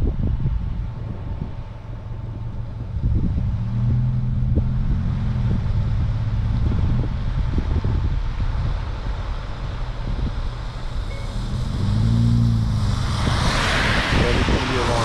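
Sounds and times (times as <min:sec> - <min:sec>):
car engine and road drone: 0:00.0 - 0:15.0
wind buffeting microphone: 0:00.0 - 0:15.0.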